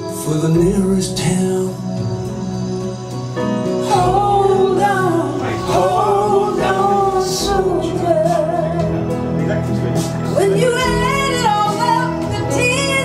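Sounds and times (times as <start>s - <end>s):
person singing with vibrato: 0.0s - 9.6s
song over speakers: 0.0s - 13.0s.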